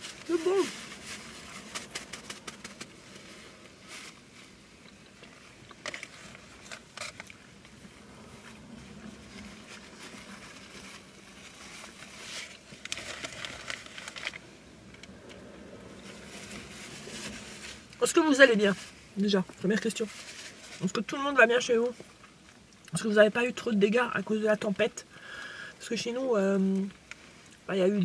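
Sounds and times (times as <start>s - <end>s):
paper wrappers crinkling: 0.0s - 4.6s, 9.0s - 14.5s.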